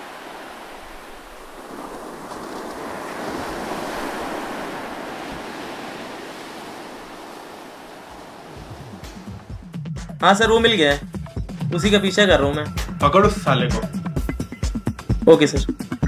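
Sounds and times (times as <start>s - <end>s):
sea waves on a rocky shore: 0.0s - 9.7s.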